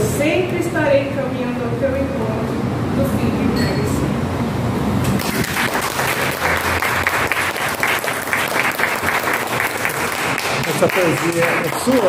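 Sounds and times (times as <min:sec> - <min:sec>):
group of people applauding: 0:05.1 - 0:12.0.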